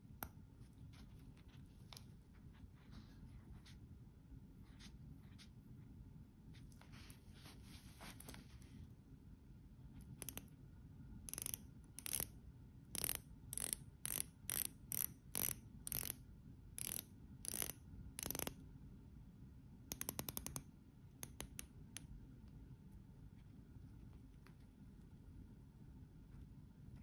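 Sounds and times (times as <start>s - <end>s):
watch bezel ratcheting clicks: 11.3s - 12.3s, 13.0s - 16.2s, 16.8s - 18.5s.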